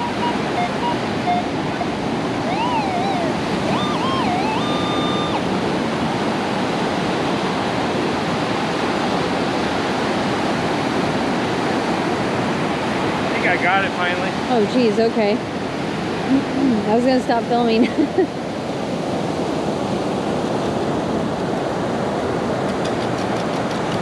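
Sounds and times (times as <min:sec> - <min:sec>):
metal detector warbling tone: 0:00.0 - 0:05.6
ocean surf breaking: 0:00.0 - 0:24.0
wind: 0:00.0 - 0:24.0.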